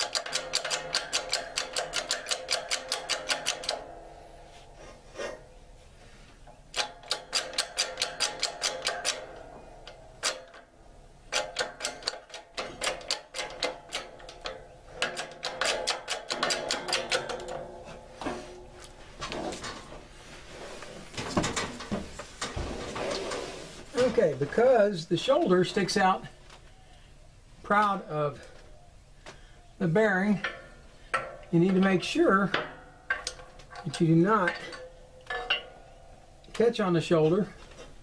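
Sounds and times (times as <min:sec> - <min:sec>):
hydraulic press clicking: 0:00.0 - 0:03.9, 0:06.7 - 0:10.7, 0:11.3 - 0:17.8.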